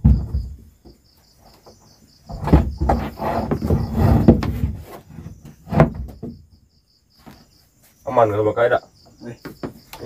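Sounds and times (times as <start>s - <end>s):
wooden bar scraping and knocking: 0.0s - 6.5s
insects chirping: 0.0s - 10.0s.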